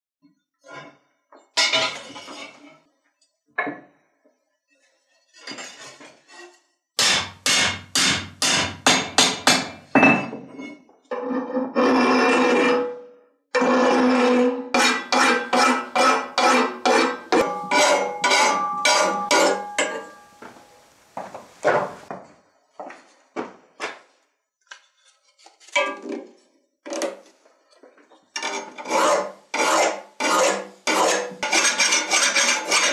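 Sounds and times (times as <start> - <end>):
hammer striking metal on anvil: 7.0 - 10.3, 14.8 - 20.7
file rasping on metal: 13.6 - 19.7, 28.4 - 32.9
clamped metal ringing: 15.1 - 20.8.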